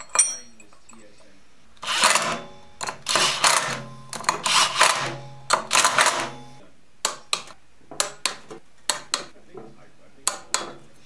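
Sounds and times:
metal tool clicks: 0.0 - 1.1
cordless drill whirring: 1.8 - 6.6.

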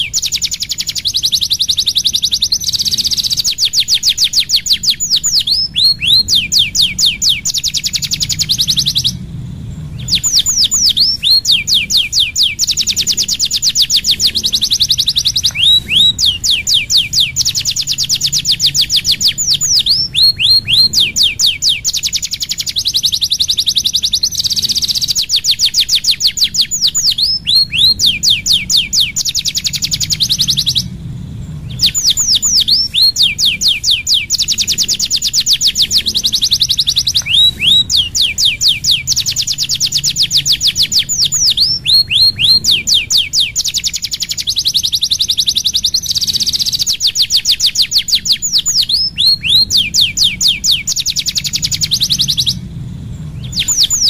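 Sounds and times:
canary singing trills: 0.0 - 54.0.

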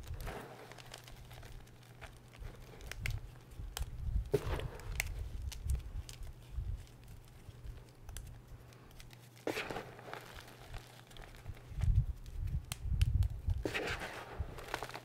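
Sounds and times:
hands crunching dry chalk: 0.0 - 15.0.

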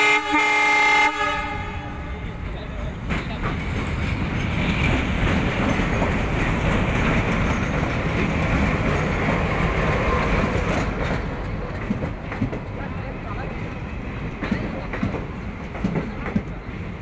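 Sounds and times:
diesel locomotive engine rumbling: 0.0 - 17.0
coaches rolling on rails: 2.0 - 17.0.

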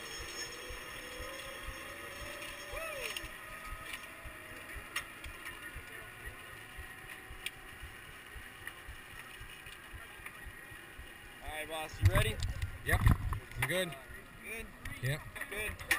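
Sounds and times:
faint clicks: 1.2 - 11.2
wind buffeting microphone: 3.3 - 13.6.

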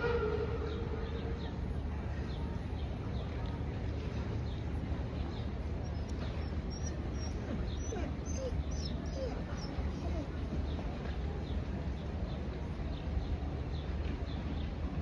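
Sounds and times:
low background rumble: 0.0 - 15.0
small birds chirping: 5.4 - 10.3.

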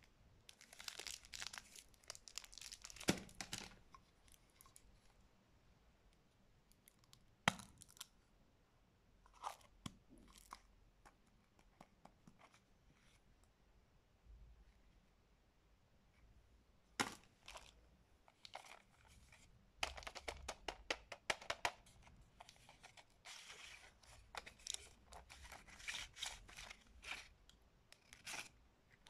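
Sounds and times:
cellophane wrapper crinkling: 0.5 - 4.9, 22.4 - 27.3.

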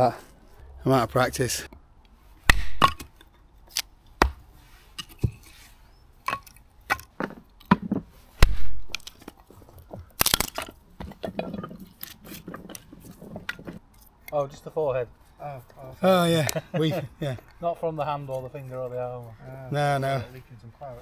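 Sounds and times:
axe splitting firewood: 2.5 - 5.5, 6.2 - 13.8
split wood clattering down: 8.9 - 13.8.

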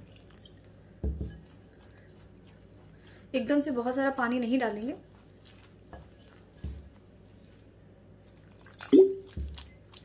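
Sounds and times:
spoon stirring batter in bowl: 0.0 - 10.0.

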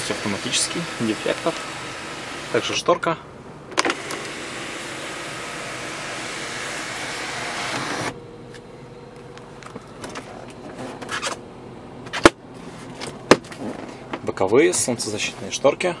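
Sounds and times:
sunroof motor whirring: 0.0 - 11.4.

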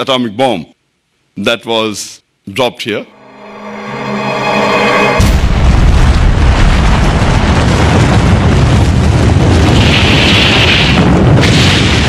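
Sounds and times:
explosion deep rumble: 5.2 - 12.0.

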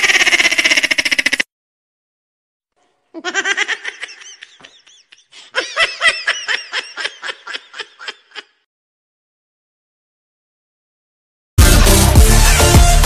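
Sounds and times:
high-pitched laughter: 0.0 - 1.4, 3.2 - 8.7.

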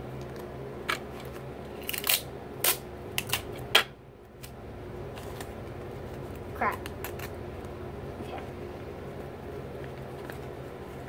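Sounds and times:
paper crackling: 9.1 - 11.0.

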